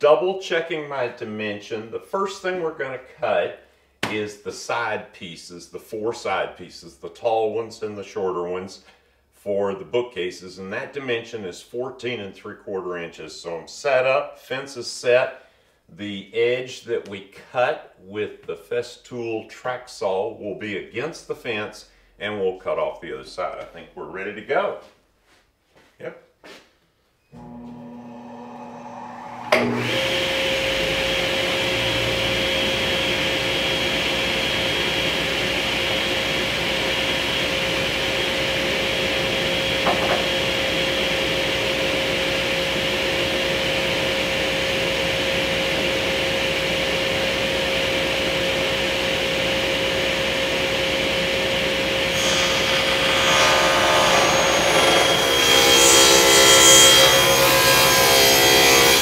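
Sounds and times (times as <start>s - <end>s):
table saw humming: 27.3s - 59.0s
table saw cutting wood: 27.4s - 59.0s.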